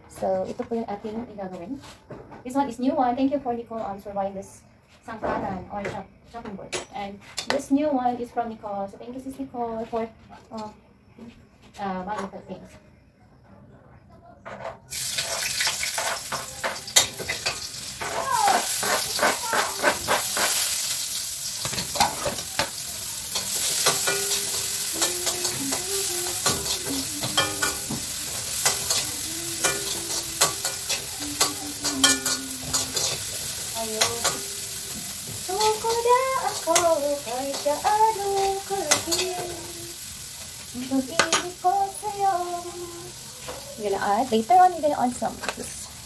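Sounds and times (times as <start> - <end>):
meat sizzling in a pan: 14.9 - 46.0
metal spatula scraping pan: 15.1 - 21.0, 21.6 - 39.5.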